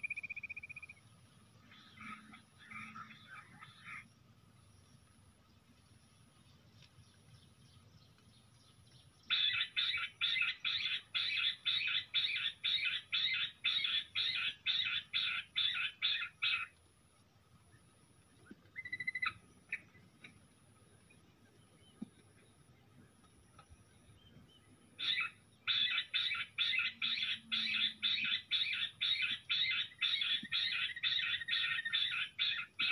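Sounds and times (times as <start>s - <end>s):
quail calling harsh notes: 25.0s - 32.9s.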